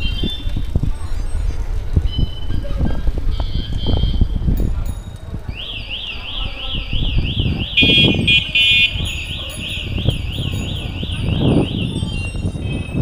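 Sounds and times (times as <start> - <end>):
steady beeping tone: 5.6 - 13.0.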